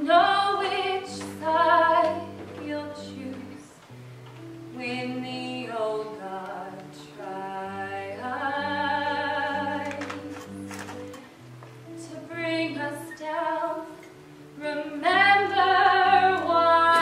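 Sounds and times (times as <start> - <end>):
person singing with vibrato: 4.7 - 10.7, 11.9 - 17.0.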